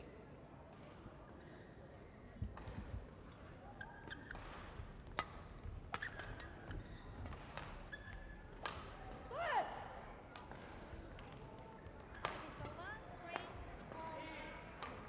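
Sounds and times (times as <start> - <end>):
shoe soles squealing on court: 3.8 - 4.4, 6.0 - 7.0, 7.8 - 8.4
racket striking shuttlecock: 4.0 - 9.0, 10.3 - 11.4, 12.0 - 13.6.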